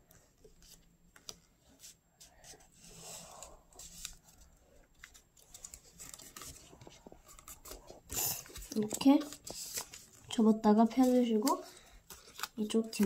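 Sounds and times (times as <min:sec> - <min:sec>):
paper rustling and crackling: 0:02.5 - 0:13.0.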